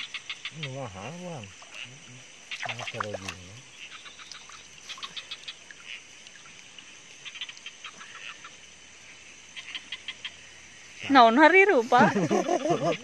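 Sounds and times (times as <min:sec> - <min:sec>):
crickets trilling: 0:00.0 - 0:13.0
insects chirping quickly: 0:00.0 - 0:13.0.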